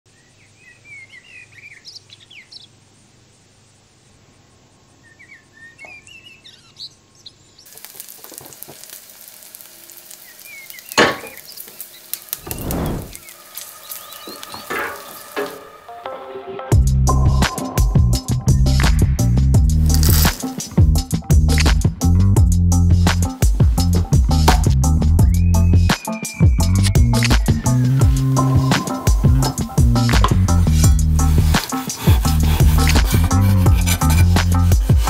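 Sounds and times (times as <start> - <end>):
birds chirping: 4.9 - 7.8, 10.1 - 16.0
meat sizzling in a pan: 7.7 - 15.8, 19.8 - 20.8, 27.4 - 32.7.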